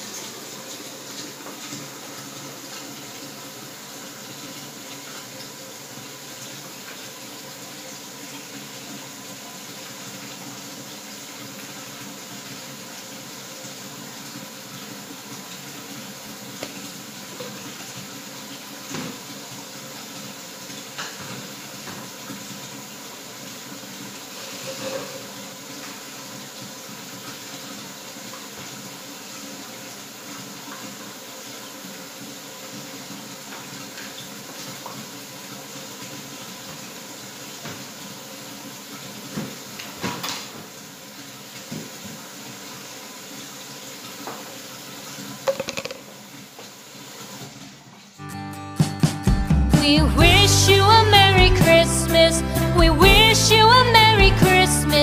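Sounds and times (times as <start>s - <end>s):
metal cups clinking on a tray: 45.5s - 46.1s.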